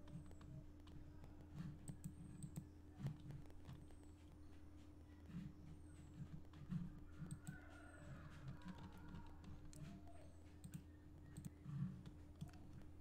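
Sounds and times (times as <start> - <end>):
computer mouse clicks: 0.1 - 3.9, 7.2 - 7.6, 10.6 - 12.9.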